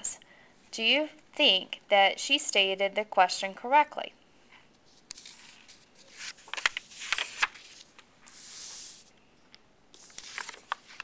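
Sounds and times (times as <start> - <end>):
paper cards rustling: 4.8 - 9.1, 10.0 - 11.0
card sliding across surface: 4.9 - 9.1.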